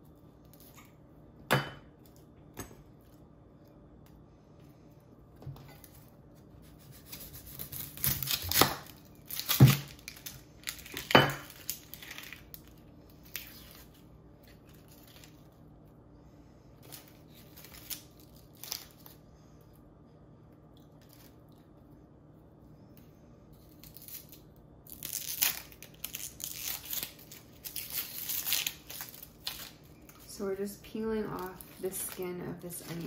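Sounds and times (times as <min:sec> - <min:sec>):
onion skin crackling and tearing: 0:05.8 - 0:15.6, 0:16.8 - 0:19.2, 0:23.5 - 0:30.3, 0:31.0 - 0:33.0.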